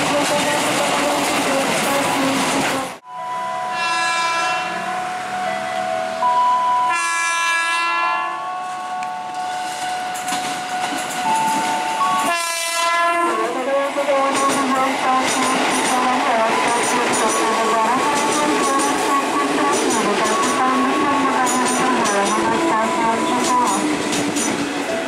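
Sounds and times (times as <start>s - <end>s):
train wheels rumbling and clattering: 0.0s - 3.0s, 9.3s - 12.4s, 13.3s - 25.0s
train horn blasts: 3.6s - 5.0s, 6.8s - 8.5s, 11.9s - 14.2s.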